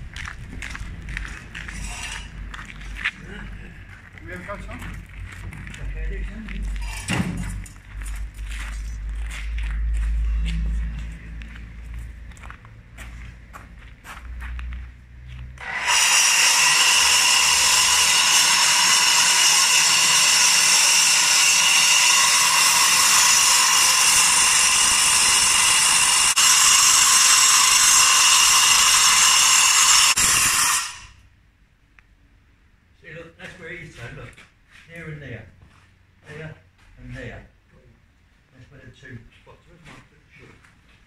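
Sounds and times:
angle grinder cutting concrete: 1.6 - 2.5, 15.6 - 31.2
grinder winding down: 15.6 - 31.2.

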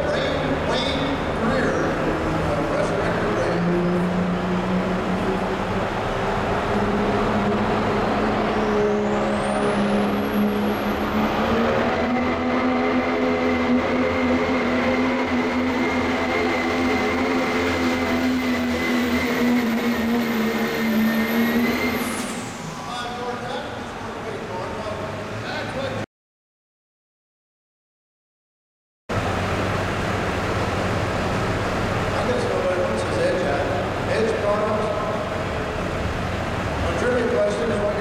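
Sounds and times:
high whistle: 20.8 - 22.9
diesel pickup engine under load: 29.1 - 38.0.

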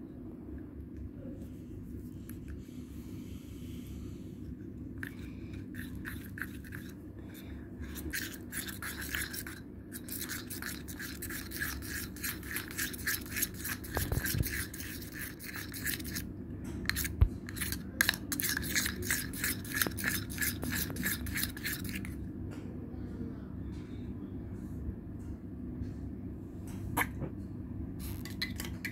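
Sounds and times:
steady low hum: 0.0 - 28.9
metal spoon scraping cup: 5.7 - 7.0, 7.8 - 16.2, 16.9 - 22.2.

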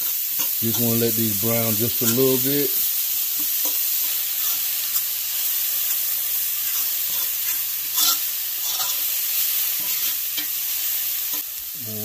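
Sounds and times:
onions sizzling in oil: 0.0 - 12.0
fork scraping a pan: 6.6 - 10.6.

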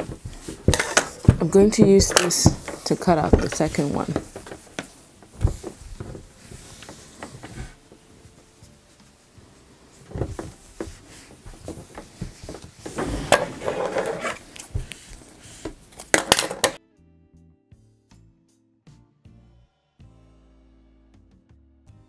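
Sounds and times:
fabric shifted by hand: 2.5 - 15.4.

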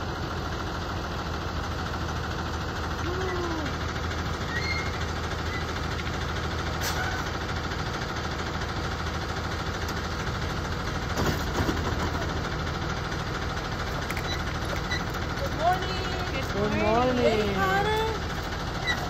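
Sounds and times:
bus engine idling: 0.0 - 19.0.

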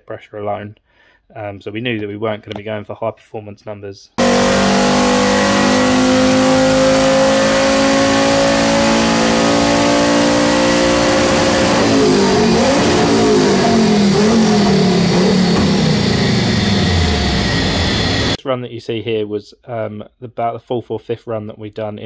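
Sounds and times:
turbocharged engine revving: 4.2 - 18.4.

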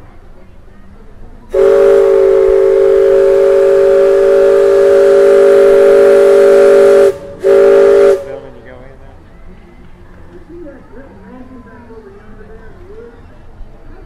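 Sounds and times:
steam whistle blowing chord: 1.5 - 8.4.

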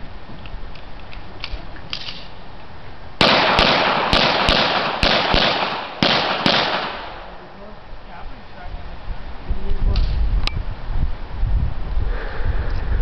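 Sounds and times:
echoing shotgun shots: 3.2 - 7.3.

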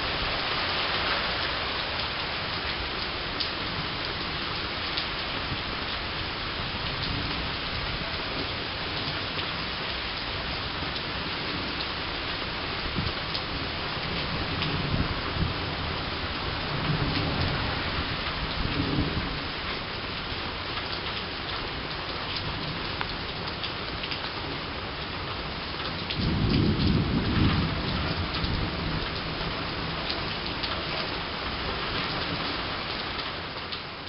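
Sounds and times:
rain falling steadily: 0.0 - 34.0
raindrops ticking close by: 0.0 - 34.0
thunder rumbling: 26.2 - 30.9.

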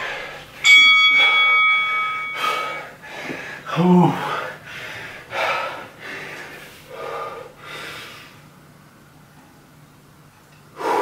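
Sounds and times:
man breathing hard: 0.0 - 8.5, 10.7 - 11.0.

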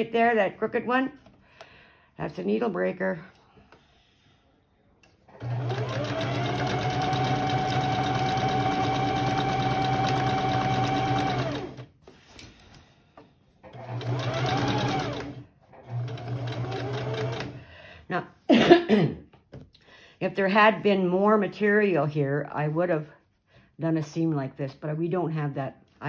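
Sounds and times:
electric sewing machine stitching: 5.3 - 11.9, 13.6 - 17.6.

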